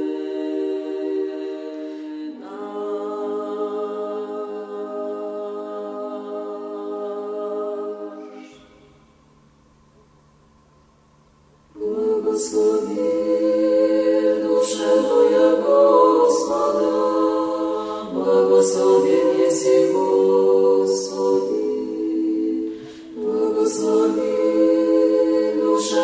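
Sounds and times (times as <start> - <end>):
choir singing liturgical chant: 0.0 - 8.9, 11.8 - 26.0.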